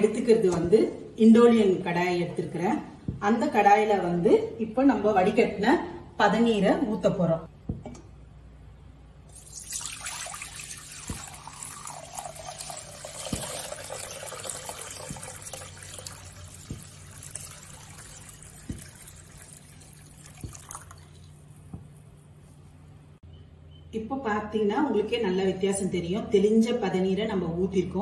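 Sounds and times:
liquid pouring into a metal pan: 0:09.3 - 0:21.4.

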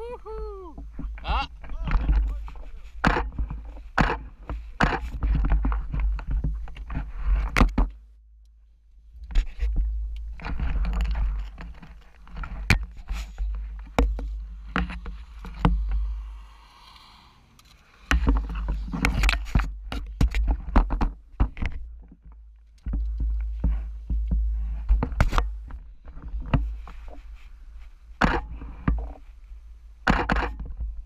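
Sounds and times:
microphone handling knocks and rattles: 0:00.8 - 0:08.1, 0:09.2 - 0:16.1, 0:18.1 - 0:29.3.

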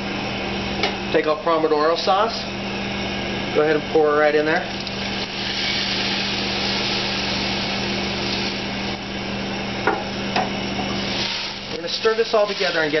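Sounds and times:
low kitchen hum: 0:00.0 - 0:13.0
sauce sizzling in a saucepan: 0:04.9 - 0:09.0, 0:11.0 - 0:13.0.

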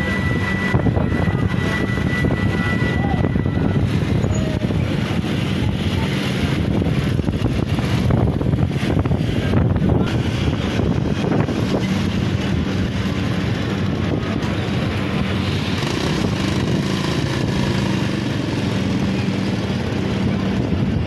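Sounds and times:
engine running steadily: 0:00.0 - 0:21.0.

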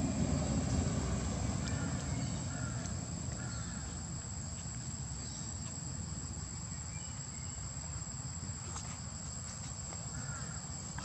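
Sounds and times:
low steady rumble: 0:00.0 - 0:06.7
insects droning: 0:00.0 - 0:11.0.

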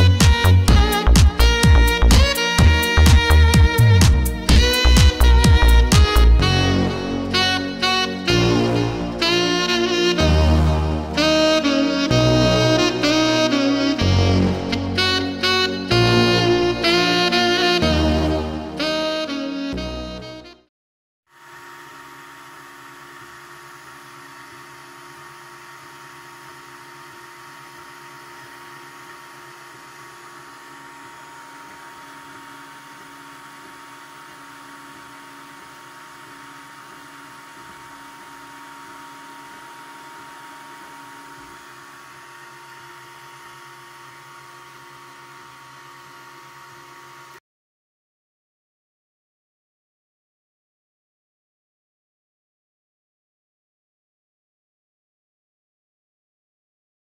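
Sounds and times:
printer fans and motors humming: 0:21.4 - 0:47.4.

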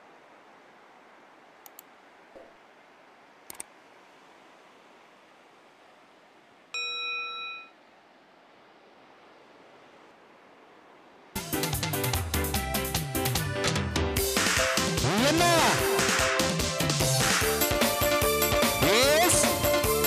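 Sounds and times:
faint steady hiss: 0:00.0 - 0:20.0
notification bell ding: 0:06.8 - 0:07.8.

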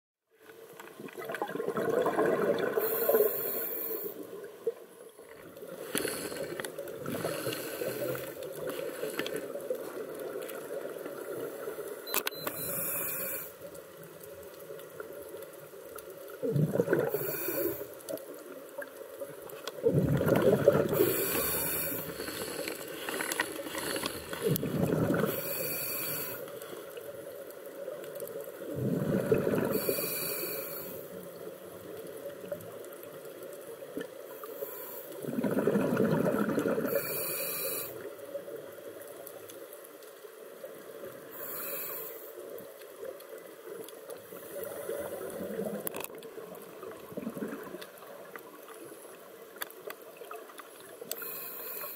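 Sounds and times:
exhaled air bubbling: 0:01.0 - 0:11.6, 0:16.3 - 0:17.9, 0:19.7 - 0:26.4, 0:28.5 - 0:31.0, 0:35.2 - 0:38.0, 0:44.2 - 0:48.7
regulator inhale hiss: 0:02.8 - 0:04.4, 0:05.7 - 0:09.7, 0:11.5 - 0:13.8, 0:17.0 - 0:18.1, 0:20.9 - 0:24.6, 0:25.2 - 0:27.0, 0:29.6 - 0:31.5, 0:34.3 - 0:35.2, 0:36.9 - 0:38.2, 0:41.2 - 0:42.6, 0:51.1 - 0:51.9.

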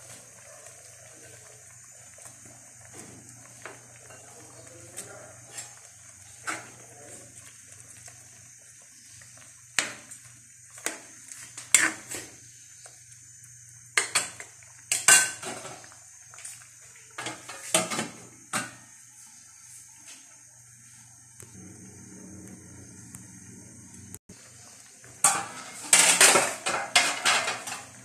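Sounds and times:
metal ladle scraping a wok: 0:11.6 - 0:12.2
pot lid clattering: 0:25.2 - 0:28.0.

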